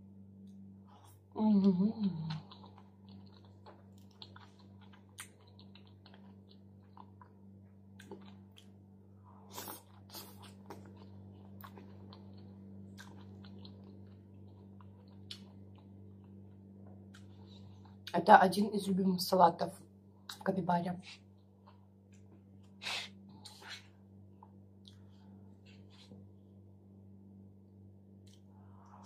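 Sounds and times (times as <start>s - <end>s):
low hum: 0.0s - 29.0s
chewing lettuce: 2.0s - 8.8s, 9.5s - 18.2s.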